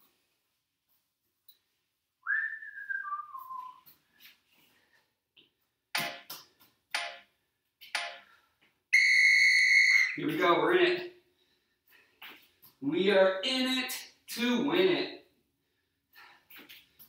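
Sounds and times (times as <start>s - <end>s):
person whistling: 2.2s - 3.9s, 9.0s - 10.2s.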